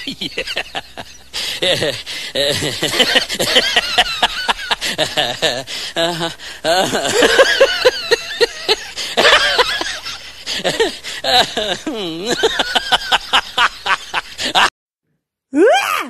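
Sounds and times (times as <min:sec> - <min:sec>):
people laughing: 0:00.0 - 0:14.7.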